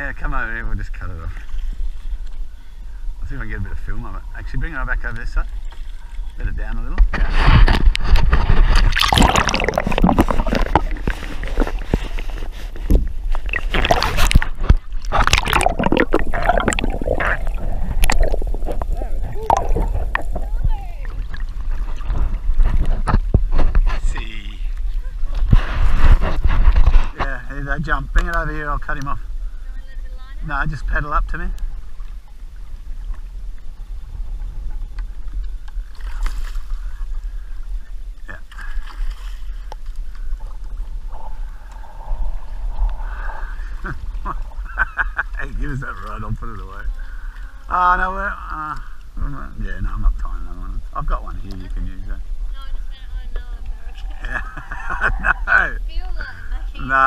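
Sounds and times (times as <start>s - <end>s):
sea water sloshing and gurgling: 0.0s - 57.0s
water splashing against camera: 3.3s - 57.0s
wind rumble on microphone: 6.1s - 38.4s
fish thrashing splash: 7.7s - 12.6s, 13.3s - 22.5s.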